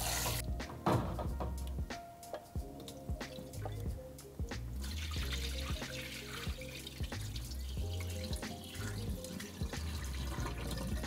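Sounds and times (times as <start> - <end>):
background music with bass: 0.0 - 11.0
water splashing and pouring: 4.7 - 11.0.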